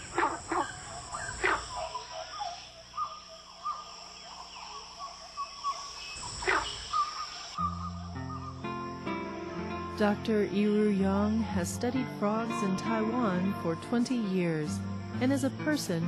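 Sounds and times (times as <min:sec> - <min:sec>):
high-pitched insect chorus: 0:00.0 - 0:16.0
music: 0:07.6 - 0:16.0.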